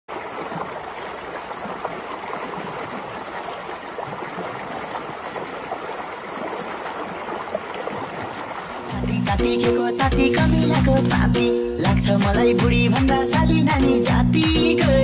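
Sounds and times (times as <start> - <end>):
stream rushing over stones: 0.1 - 11.6.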